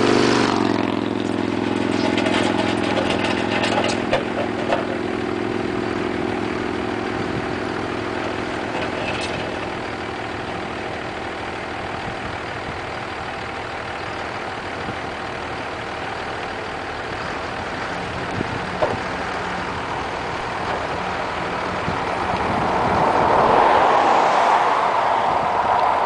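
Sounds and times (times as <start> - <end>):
truck engine running: 0.0 - 26.0.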